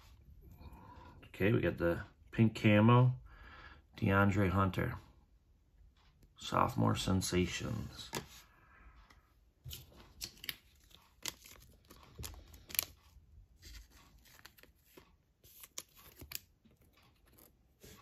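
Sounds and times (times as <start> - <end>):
plastic card sleeve rustling: 9.6 - 18.0.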